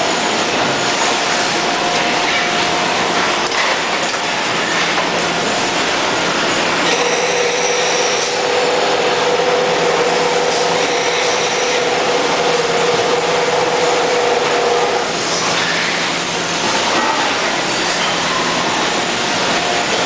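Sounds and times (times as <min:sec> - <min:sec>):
machine whine: 0:00.0 - 0:20.0
machinery din with low hum: 0:00.0 - 0:20.0.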